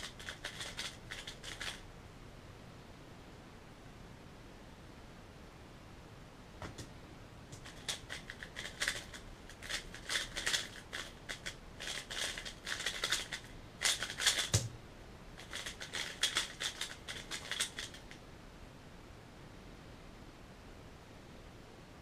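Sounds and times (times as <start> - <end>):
puzzle cube plastic clicks: 0.0 - 1.8, 7.6 - 14.7, 15.4 - 18.2.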